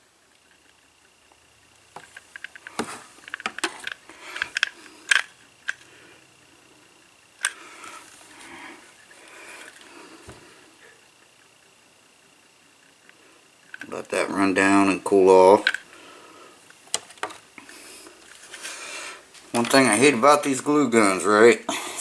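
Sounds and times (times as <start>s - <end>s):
handling noise: 1.9s - 5.8s.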